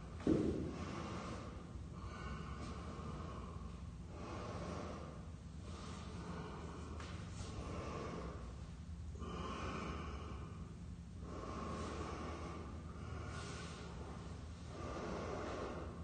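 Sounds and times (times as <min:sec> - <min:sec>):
man breathing heavily through nose: 0:00.0 - 0:16.0.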